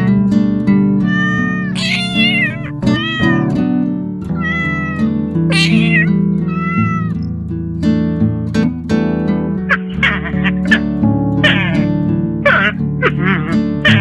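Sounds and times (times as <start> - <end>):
cat meowing: 1.0 - 3.6, 4.3 - 7.2
background music: 9.4 - 14.0.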